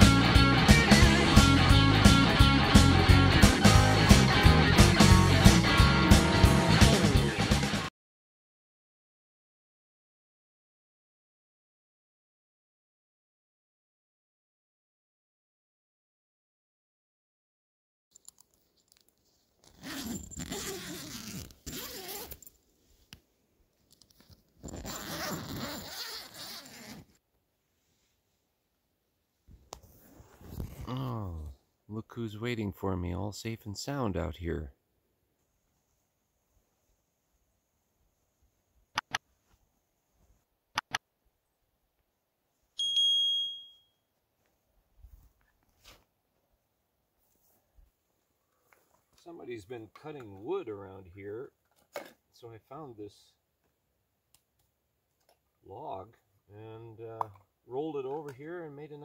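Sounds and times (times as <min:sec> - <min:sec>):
tent zipper pulled open: 0:19.6 - 0:22.5, 0:24.6 - 0:27.2, 0:29.9 - 0:31.2
bell-like notification ding: 0:42.8 - 0:43.8.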